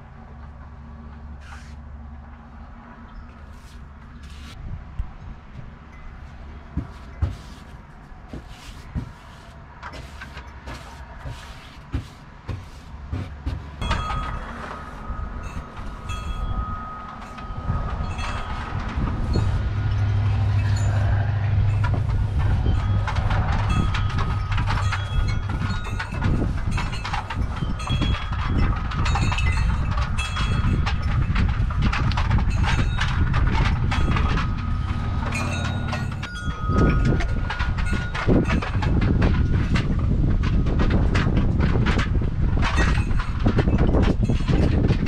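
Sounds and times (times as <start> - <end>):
mechanical rumble with whine: 0.0 - 45.0.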